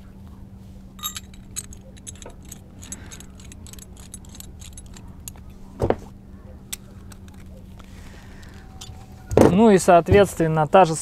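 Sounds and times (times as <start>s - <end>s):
metal shackle clicking and clinking: 1.0s - 5.6s, 6.7s - 9.1s.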